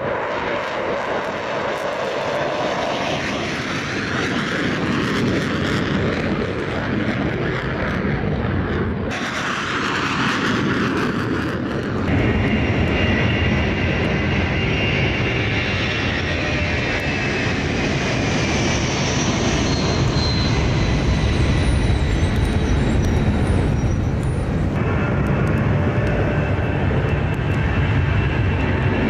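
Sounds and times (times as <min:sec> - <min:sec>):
jet engines roaring: 0:00.0 - 0:29.0
steady high whine: 0:11.6 - 0:29.0.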